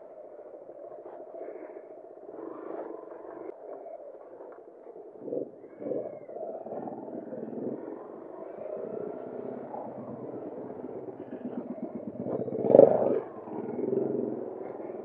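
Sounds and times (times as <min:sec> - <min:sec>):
motorcycle engine running: 0:06.9 - 0:15.0.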